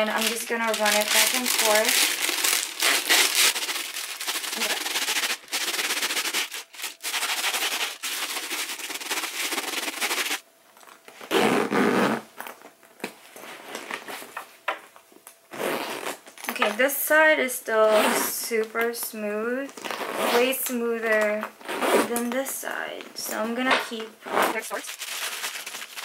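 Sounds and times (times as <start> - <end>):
wax paper crinkling: 0.0 - 10.4, 24.7 - 26.0.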